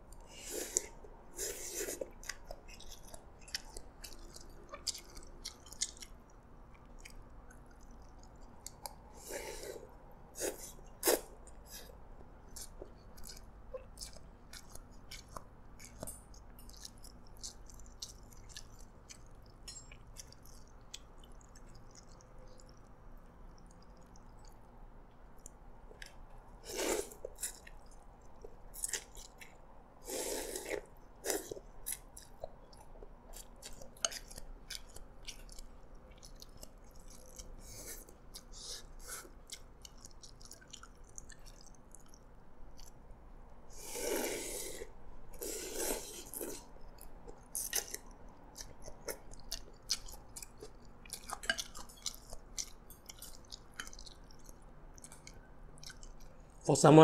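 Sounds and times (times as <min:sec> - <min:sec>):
wet chewing: 0:00.1 - 0:43.2, 0:43.8 - 0:56.6
slurping noodles: 0:00.4 - 0:02.0, 0:26.6 - 0:27.2, 0:30.0 - 0:31.5, 0:43.8 - 0:46.6.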